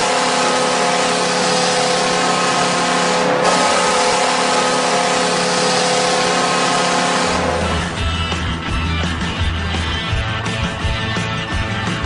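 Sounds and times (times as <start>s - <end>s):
arena goal horn blaring: 0.0s - 8.0s.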